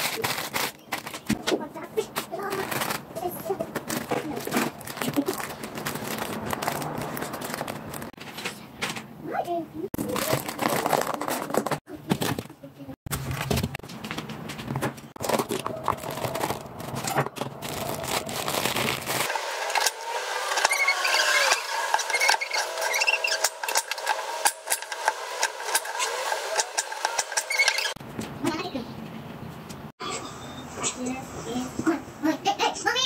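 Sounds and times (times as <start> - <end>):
parchment paper crinkling: 0.0 - 8.7, 10.0 - 19.4.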